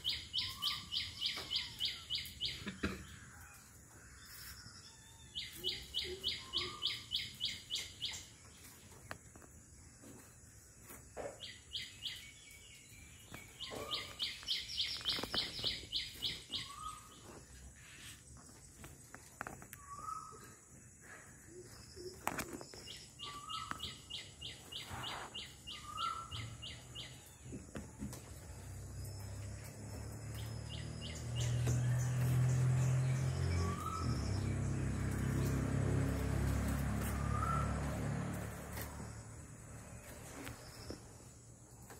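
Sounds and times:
bird chirping high and quick: 0:00.0 - 0:02.6, 0:05.4 - 0:08.3, 0:13.4 - 0:17.2, 0:22.8 - 0:27.3.

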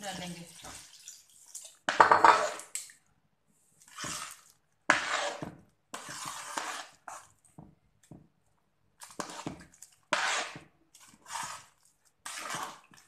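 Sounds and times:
water pouring into metal bowl: 0:00.2 - 0:01.8
spoon stirring butter in bowl: 0:03.8 - 0:08.4, 0:09.0 - 0:13.0.

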